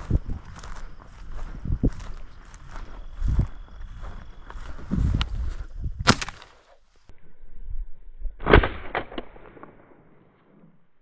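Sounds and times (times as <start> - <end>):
shotgun shots: 6.0 - 6.6, 8.4 - 10.1.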